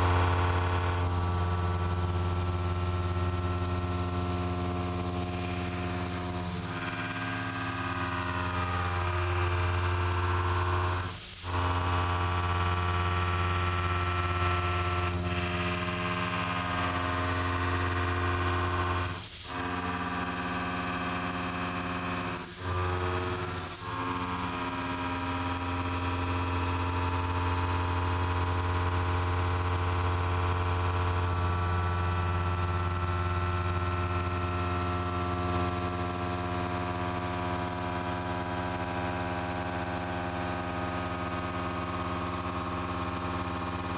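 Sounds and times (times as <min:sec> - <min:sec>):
milling machine hum: 0:00.0 - 0:24.9.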